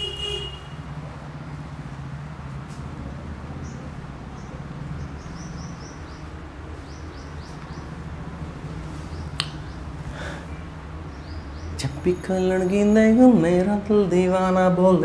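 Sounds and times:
birds chirping: 0:03.5 - 0:14.2.

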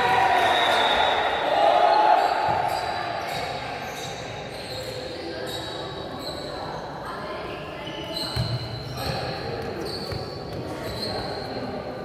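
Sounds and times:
background chatter: 0:00.0 - 0:12.0
shoes squeaking on court: 0:02.1 - 0:06.9, 0:07.8 - 0:11.8
ball bouncing on floor: 0:08.3 - 0:10.7.

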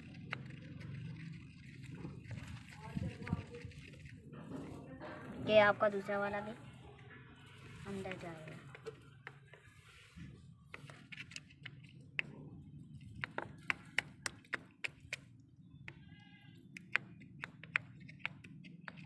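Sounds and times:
faint clicks and taps: 0:00.0 - 0:04.8, 0:08.0 - 0:09.7, 0:10.6 - 0:19.0.

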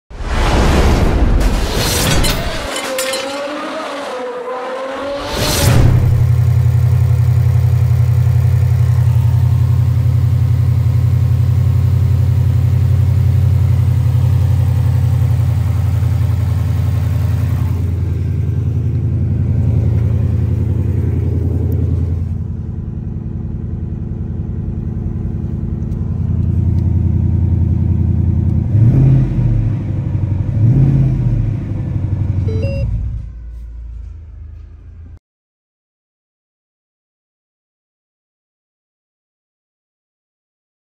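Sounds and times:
car engine idling and revving: 0:03.2 - 0:35.2.

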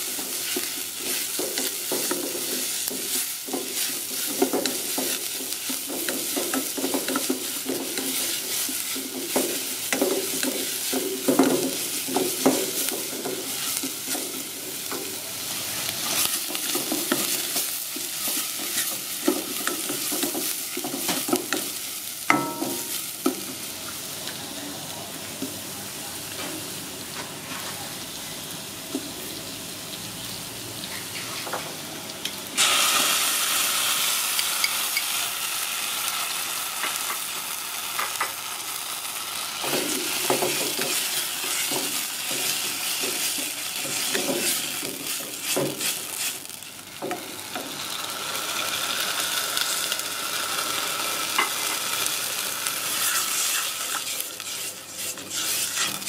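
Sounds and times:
onion and garlic sizzling: 0:00.0 - 0:56.0
wooden spatula scraping a pan: 0:16.0 - 0:21.3, 0:39.7 - 0:46.4, 0:52.9 - 0:56.0.

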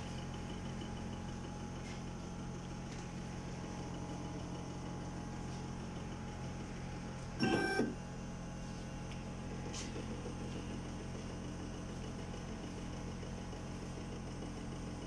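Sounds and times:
milling machine humming: 0:00.0 - 0:15.0
short pitched tone: 0:07.4 - 0:08.0.

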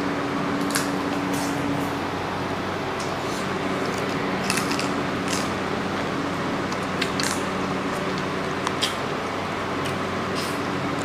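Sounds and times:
steady mechanical hum: 0:00.0 - 0:11.0
chewing clicks and smacks: 0:06.7 - 0:11.0.

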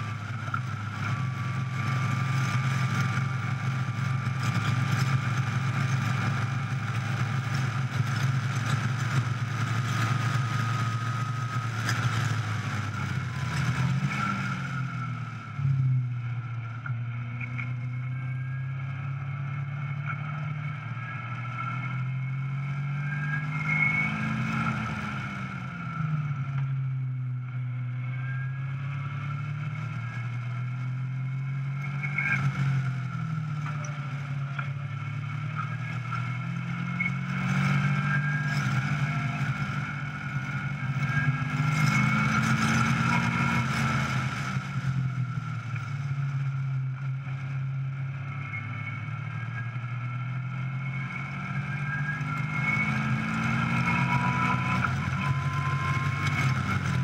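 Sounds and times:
car engine revving hard: 0:36.1 - 0:44.4, 0:51.4 - 0:57.0.

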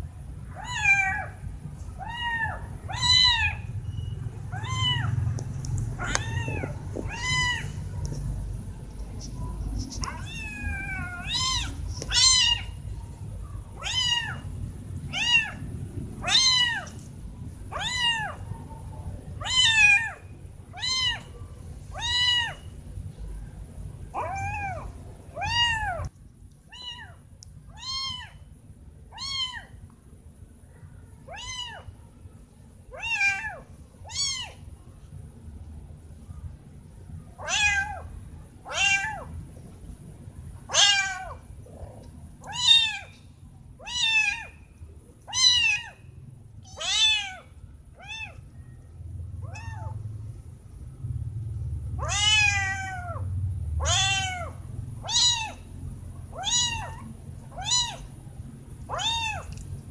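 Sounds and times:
kitten meowing: 0:00.5 - 0:01.4, 0:02.0 - 0:03.7, 0:04.5 - 0:05.2, 0:06.0 - 0:07.8, 0:10.0 - 0:12.8, 0:13.8 - 0:14.4, 0:15.1 - 0:15.6, 0:16.2 - 0:17.0, 0:17.7 - 0:18.4, 0:19.4 - 0:21.3, 0:22.0 - 0:22.7, 0:24.2 - 0:26.1, 0:26.7 - 0:28.4, 0:29.1 - 0:29.8, 0:31.3 - 0:31.9, 0:33.0 - 0:34.6, 0:37.4 - 0:38.0, 0:38.7 - 0:39.3, 0:40.7 - 0:41.4, 0:42.4 - 0:43.1, 0:43.8 - 0:44.6, 0:45.3 - 0:46.0, 0:46.6 - 0:47.4, 0:48.0 - 0:48.4, 0:49.4 - 0:50.0, 0:52.0 - 0:53.2, 0:53.8 - 0:55.6, 0:56.3 - 0:58.1, 0:58.9 - 0:59.6.

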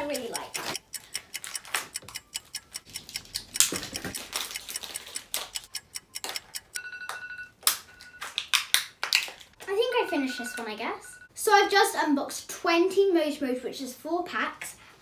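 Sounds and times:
electronic timer beeping: 0:00.0 - 0:08.2, 0:09.6 - 0:11.3
foil wrappers crinkling and tearing: 0:03.6 - 0:05.5.

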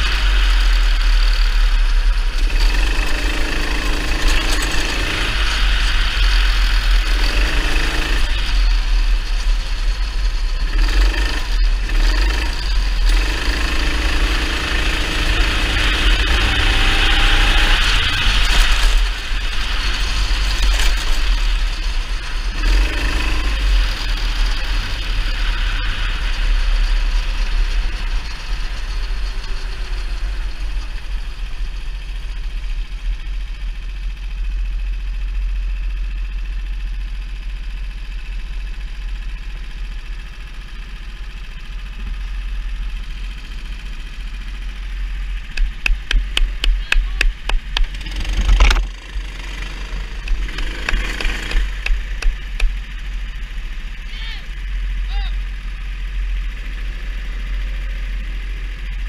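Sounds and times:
kart engine revving: 0:00.0 - 0:33.0, 0:40.6 - 0:59.0
heavy low rumble: 0:41.4 - 0:59.0.

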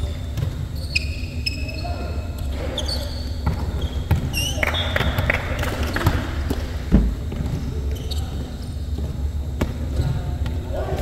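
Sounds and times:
sneaker squeaks: 0:00.0 - 0:10.7.

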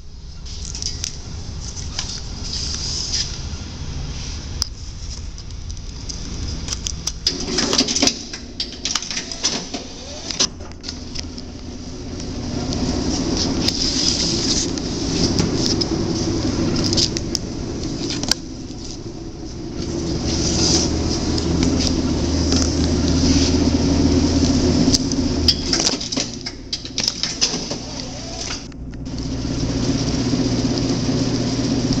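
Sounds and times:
sharp clicks and clacks: 0:05.4 - 0:11.6, 0:24.4 - 0:27.8
strapping machine motor hum: 0:06.6 - 0:32.0.

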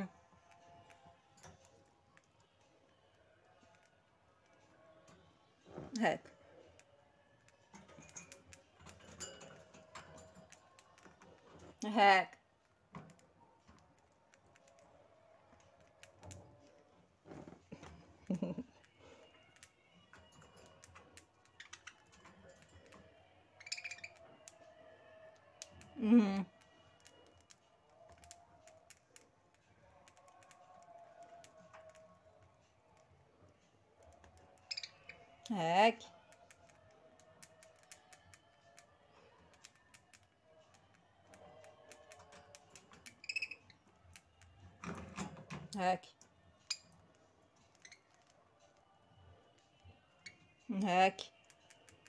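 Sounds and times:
birds clicking and pecking: 0:00.3 - 0:05.9, 0:06.5 - 0:11.8, 0:12.6 - 0:35.5, 0:36.3 - 0:50.6, 0:51.2 - 0:52.0
bird chirp: 0:23.6 - 0:24.6, 0:34.4 - 0:35.3, 0:43.0 - 0:43.8.

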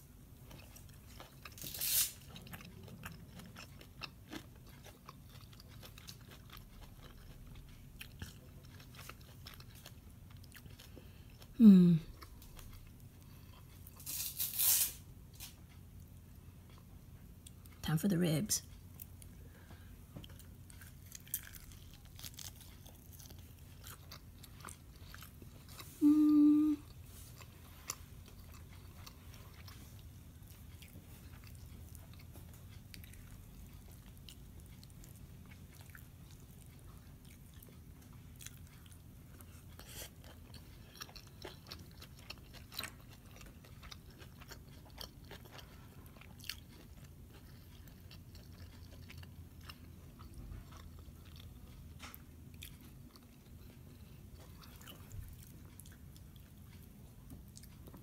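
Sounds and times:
chewing with wet smacks: 0:00.2 - 0:14.0, 0:15.6 - 0:17.8, 0:18.6 - 0:58.0
person humming mmm: 0:11.5 - 0:12.2, 0:25.9 - 0:27.0.

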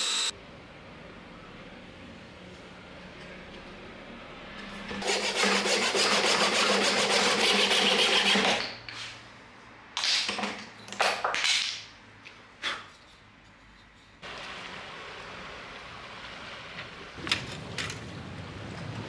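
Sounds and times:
file rasping wood: 0:05.0 - 0:08.6.

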